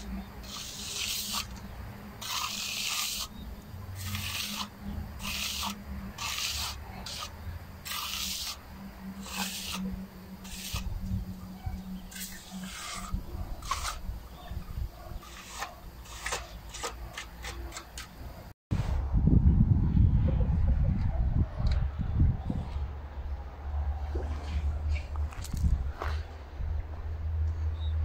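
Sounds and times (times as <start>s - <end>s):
trowel scraping wet concrete: 0.0s - 18.3s.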